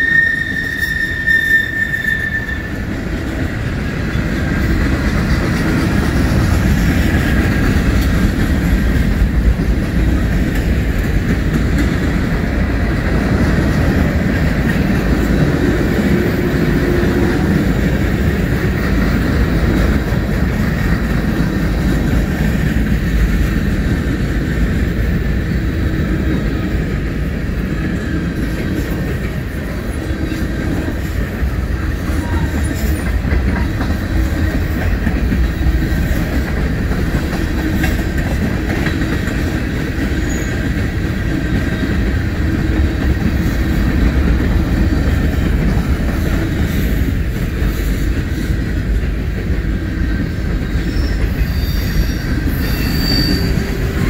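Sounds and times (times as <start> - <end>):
high wheel squeal: 0.0 - 2.9, 50.8 - 54.0
freight train wheels rumbling on rail: 0.0 - 54.0.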